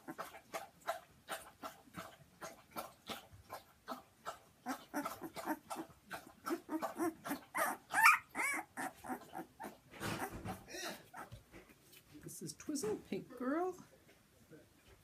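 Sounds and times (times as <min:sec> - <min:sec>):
puppy whimpering and squealing: 0:04.7 - 0:05.8, 0:06.4 - 0:11.4.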